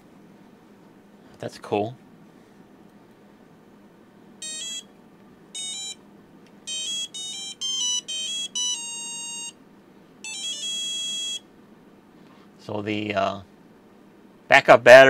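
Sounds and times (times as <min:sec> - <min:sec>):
buzzer beeping electronic tune: 0:04.4 - 0:04.9, 0:05.6 - 0:06.0, 0:06.7 - 0:09.6, 0:10.2 - 0:11.5.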